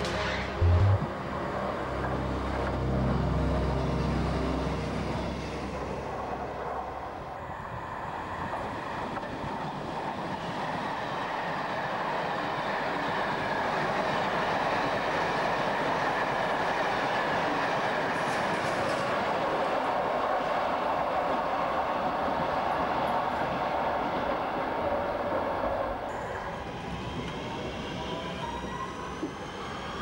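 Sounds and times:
train wheel and rail noise: 0.0s - 30.0s
low droning hum: 0.4s - 6.6s.

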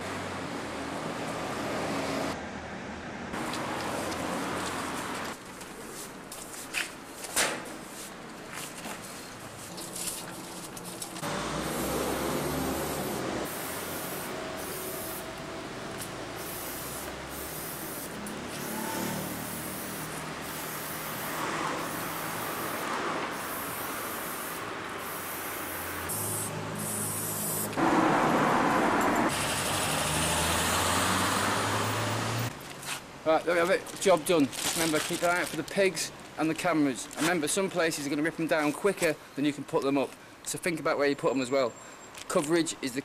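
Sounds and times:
street traffic hum: 0.0s - 43.0s
spray-paint can hissing: 11.3s - 15.4s, 16.0s - 27.8s.

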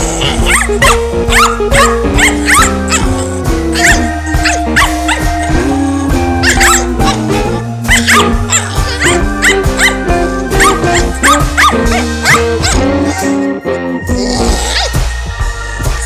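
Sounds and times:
background music: 0.0s - 16.0s
puppy yipping and barking: 0.4s - 5.6s, 6.4s - 13.3s.

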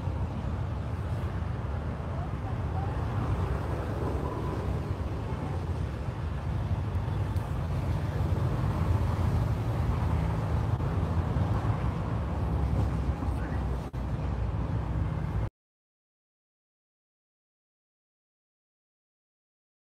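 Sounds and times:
outdoor background rumble: 0.0s - 15.5s.

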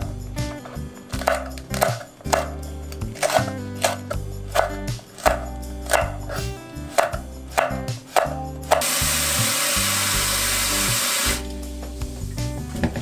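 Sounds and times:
background music: 0.0s - 13.0s
knife chopping on wooden board: 0.6s - 8.9s.

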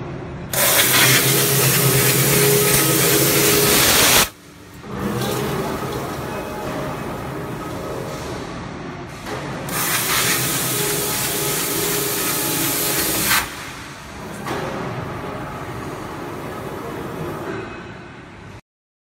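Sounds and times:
cnc machine running: 0.5s - 4.3s
loud air hiss: 0.5s - 4.4s, 9.1s - 14.1s.

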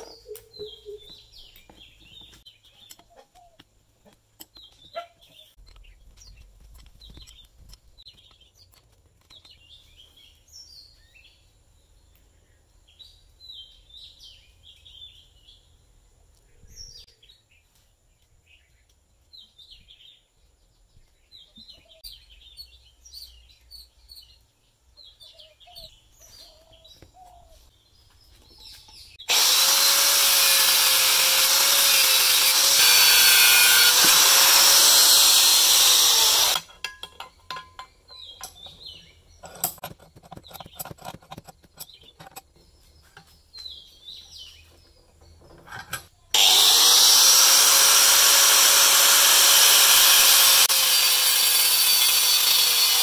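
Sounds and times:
power tool running: 29.2s - 36.6s, 46.3s - 53.0s.

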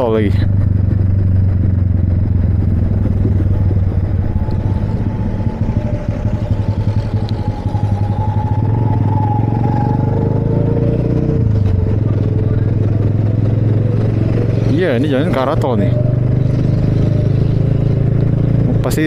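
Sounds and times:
motorcycle engine running: 0.0s - 19.0s
road noise: 0.0s - 19.0s.

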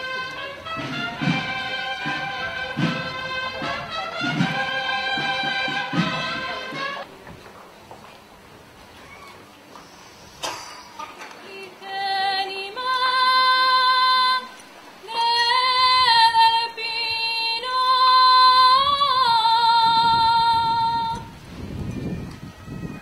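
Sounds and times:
woman singing: 11.4s - 21.3s.

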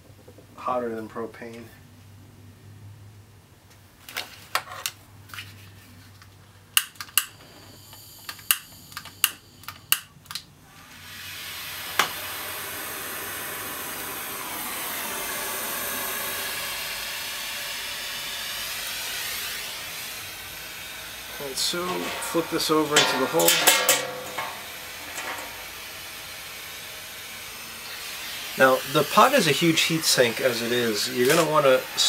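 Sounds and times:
torch igniter clicks: 6.8s - 10.5s, 11.9s - 12.2s, 21.8s - 25.7s
gas flame hissing: 6.8s - 32.0s.

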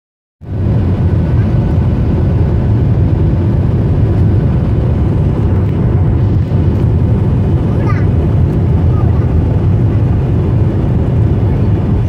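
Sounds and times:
airliner cabin engine noise: 0.4s - 12.0s.

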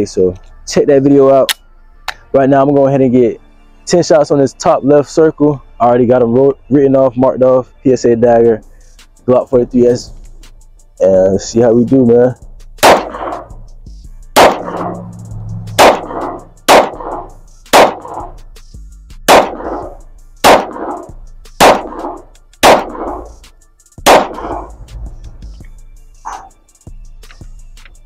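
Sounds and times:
pistol shots with echo: 12.8s - 13.6s, 14.4s - 15.0s, 15.8s - 18.4s, 19.3s - 23.4s, 24.1s - 24.8s.

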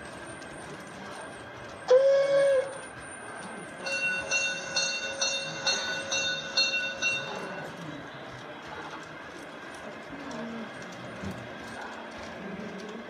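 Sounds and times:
bell ringing in even strokes: 3.8s - 7.8s.

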